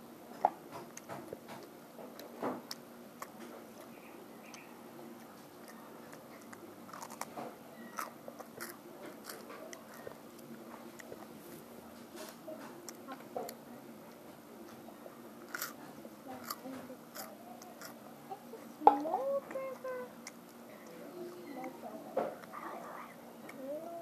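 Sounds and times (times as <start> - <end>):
person biting and chewing: 0.8 - 11.7, 12.8 - 18.0.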